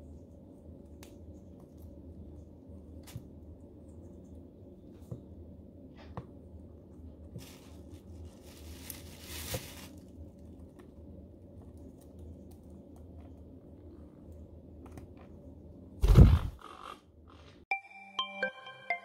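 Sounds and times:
parrot tearing leaves: 0:07.4 - 0:10.2.

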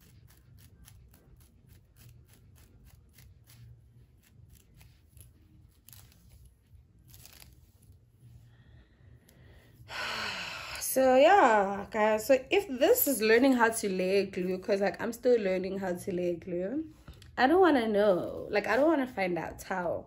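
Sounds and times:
comb scratching through hair: 0:00.0 - 0:08.5, 0:12.2 - 0:17.0, 0:17.7 - 0:19.9.

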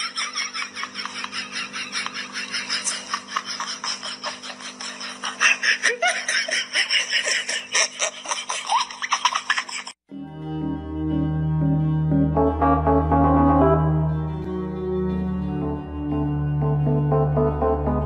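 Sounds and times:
person laughing and giggling: 0:00.0 - 0:10.0.

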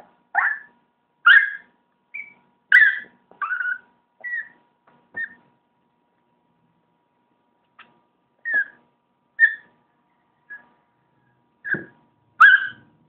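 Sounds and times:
small dog yipping: 0:00.3 - 0:05.4, 0:08.4 - 0:08.8, 0:09.4 - 0:09.8, 0:11.6 - 0:12.9.

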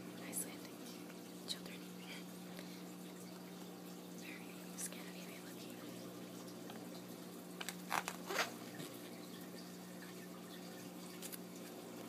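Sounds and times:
faint steady hum: 0:00.0 - 0:12.0
glossy pages turning: 0:07.6 - 0:09.0.

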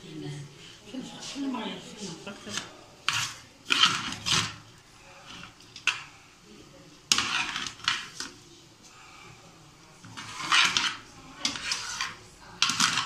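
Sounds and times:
metal spoon scraping grains in pot: 0:02.4 - 0:06.1, 0:07.1 - 0:08.4, 0:09.9 - 0:13.0.

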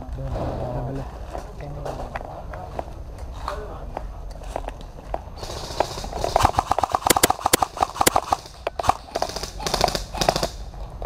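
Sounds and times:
airsoft rifles firing full-auto: 0:05.4 - 0:10.7.

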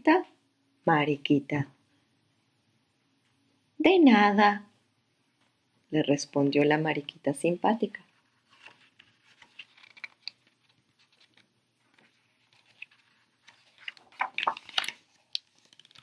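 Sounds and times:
picture book pages rustling: 0:08.0 - 0:16.0
page turning: 0:08.1 - 0:16.0.

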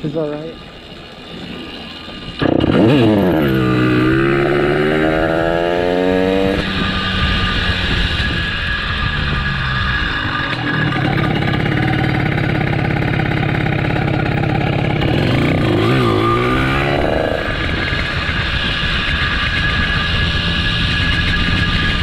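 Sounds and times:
motorized bicycle engine running: 0:06.6 - 0:22.0.

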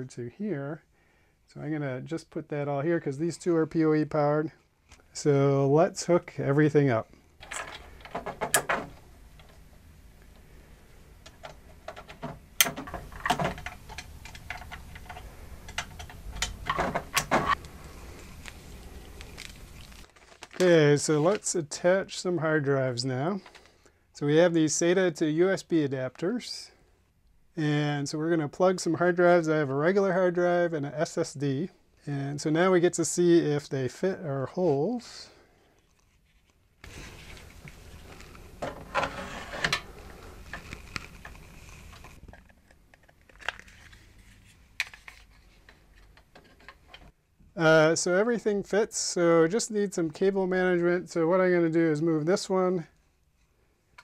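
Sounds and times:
faint steady background: 0:00.0 - 0:54.0
cables knocking and rattling: 0:07.4 - 0:09.6, 0:11.2 - 0:17.6
cable plugs clicking into ports: 0:11.2 - 0:17.6.

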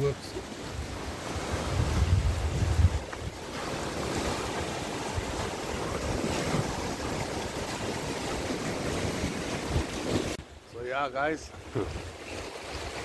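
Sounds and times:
surf breaking on rocks: 0:00.0 - 0:10.4
wind rumble on microphone: 0:00.0 - 0:10.4.

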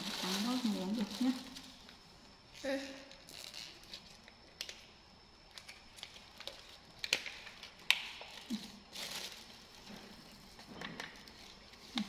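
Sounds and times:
plastic sachet rustling: 0:00.0 - 0:01.9, 0:05.9 - 0:09.9.

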